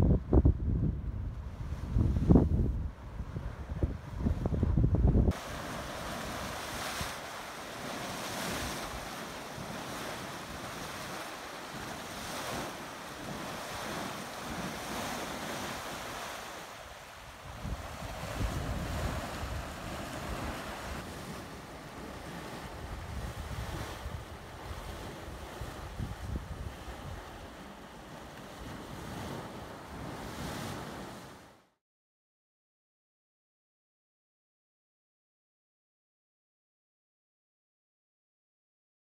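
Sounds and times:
wind buffeting microphone: 0.0s - 31.4s
hot spring water churning: 5.3s - 30.9s.

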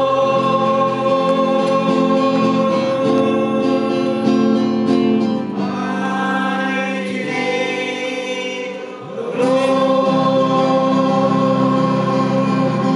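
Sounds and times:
group singing worship song: 0.0s - 12.9s.

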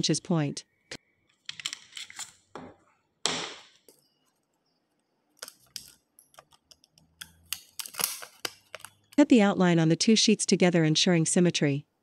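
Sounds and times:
aluminium sheet crinkle: 7.3s - 9.2s.

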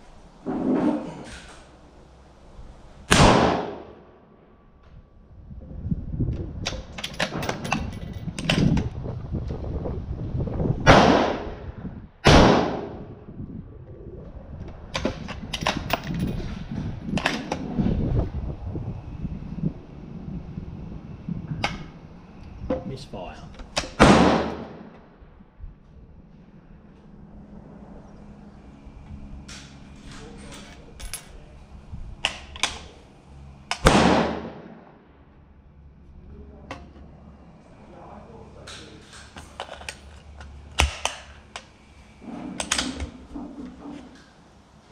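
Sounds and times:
gunshot with long echo: 3.1s - 4.1s, 10.8s - 13.1s, 24.0s - 24.9s, 33.8s - 35.0s
rifle shots: 3.1s - 4.1s, 10.9s - 11.6s, 12.2s - 13.0s, 23.9s - 24.9s, 33.8s - 34.9s
rifle metallic clicks and rattles: 6.6s - 8.9s, 14.9s - 17.6s, 42.6s - 43.2s.

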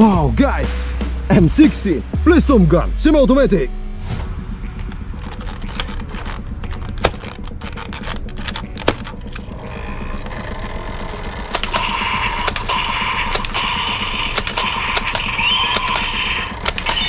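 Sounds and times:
high-pitched hum: 3.8s - 17.0s
toy blaster firing clicks: 11.4s - 17.0s.

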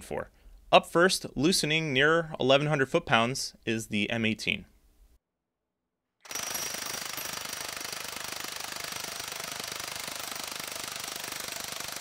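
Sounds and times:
impact wrench hammering: 6.3s - 12.0s.

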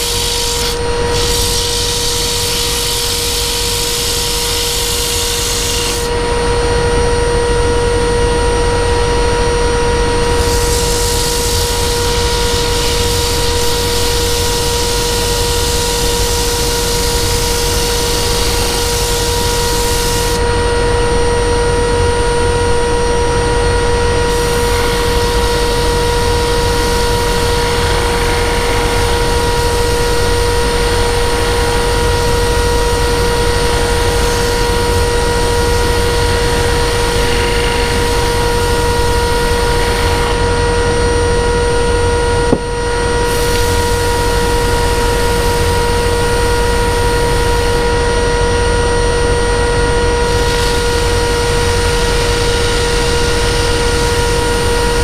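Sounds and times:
high hissing noise: 0.0s - 6.7s, 10.1s - 20.8s, 23.7s - 55.0s
power tool motor whining: 0.0s - 6.8s, 10.2s - 20.6s, 23.8s - 41.6s, 49.3s - 55.0s.

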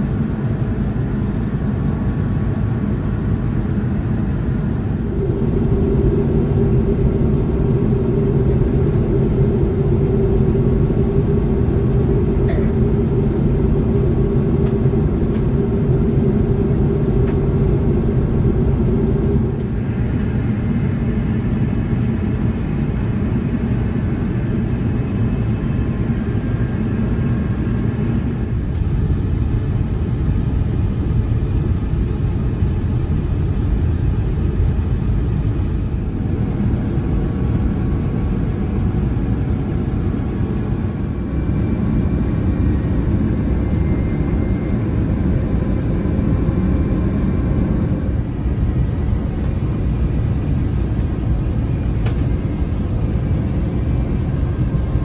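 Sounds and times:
jet engine rumble in cabin: 0.0s - 55.0s
steady low hum: 0.0s - 55.0s
rushing air: 4.0s - 21.1s.

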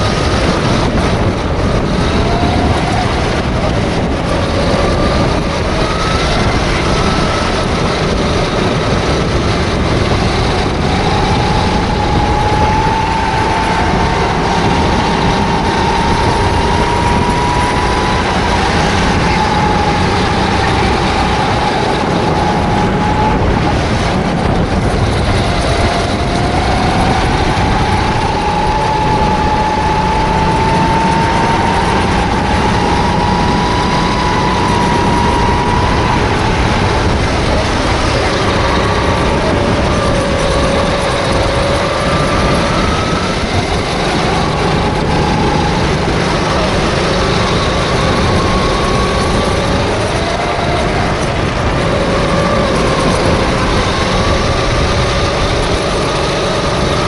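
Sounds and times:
kart engine running hard: 0.0s - 57.0s
wind and road noise: 0.0s - 57.0s.

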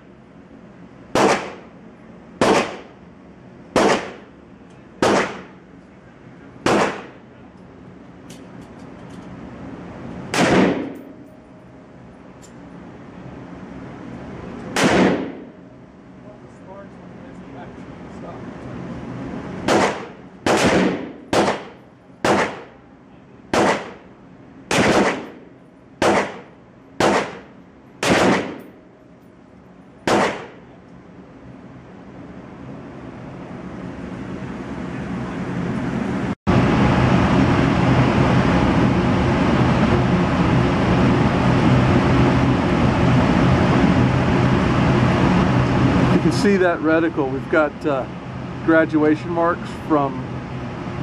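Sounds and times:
low hum: 0.0s - 51.0s
rifle shots ringing indoors: 1.2s - 1.6s, 3.8s - 4.2s, 10.4s - 11.0s, 19.7s - 22.7s, 23.5s - 24.0s, 24.7s - 25.4s, 26.0s - 28.7s, 30.1s - 30.6s.

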